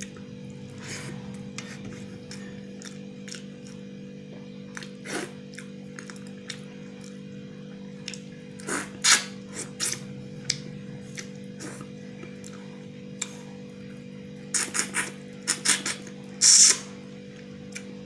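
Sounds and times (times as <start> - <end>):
steady droning tone: 0.0 - 18.0
chewing and lip smacks: 2.2 - 3.8, 9.8 - 13.4.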